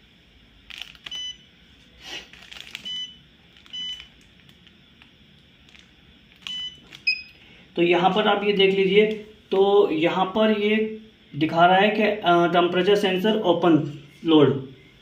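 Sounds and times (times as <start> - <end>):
touchscreen beeps: 6.5 - 7.4.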